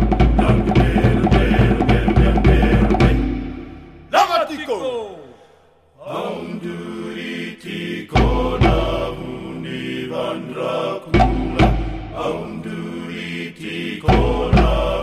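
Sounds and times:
chanting voices: 0.2s - 15.0s
background music: 6.2s - 15.0s
deep drum hits: 11.2s - 12.2s.

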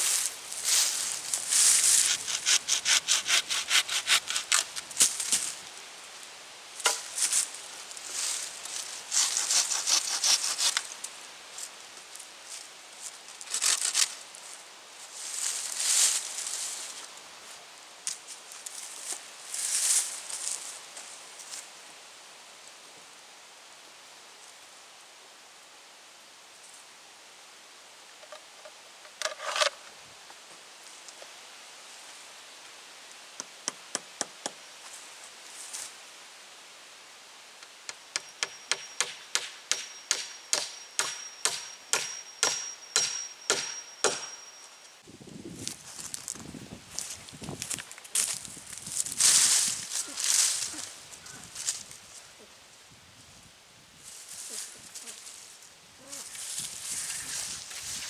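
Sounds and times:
rustling handling noise: 0.0s - 2.3s
steady outdoor hiss: 0.0s - 58.0s
machete scraping pole: 1.5s - 5.5s, 9.1s - 10.9s, 13.4s - 14.2s, 29.1s - 29.8s.

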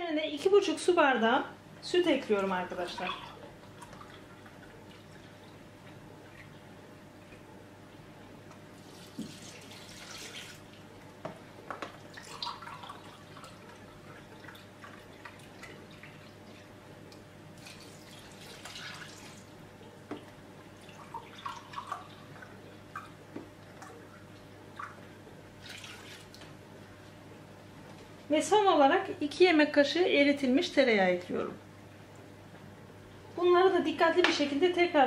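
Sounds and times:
milk pouring into a bowl: 8.8s - 10.9s, 12.0s - 16.7s, 25.6s - 26.5s.

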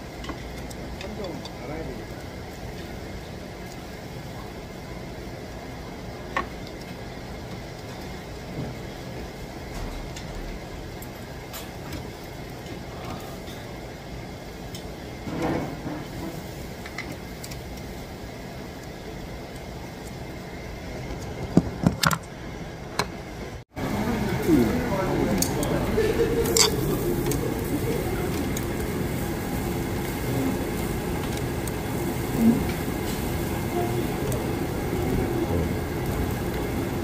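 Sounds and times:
restaurant din: 0.0s - 22.4s, 23.8s - 37.0s
chopsticks and tableware clicking: 26.4s - 27.4s.

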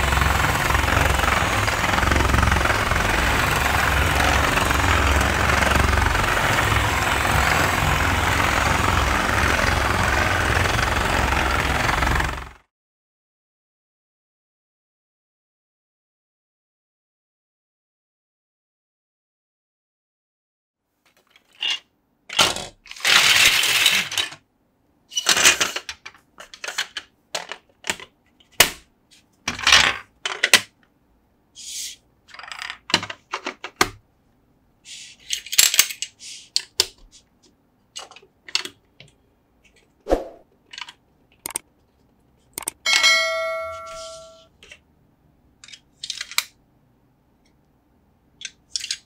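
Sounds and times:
plastic bricks clattering and clicking: 21.1s - 24.4s, 25.1s - 28.6s, 29.5s - 30.8s, 32.3s - 34.0s, 35.1s - 37.0s, 45.6s - 46.6s, 48.4s - 49.0s.

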